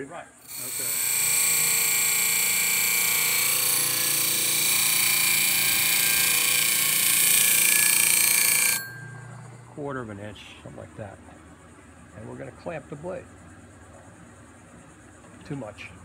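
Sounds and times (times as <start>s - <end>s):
bench grinder grinding steel: 0.4s - 9.3s.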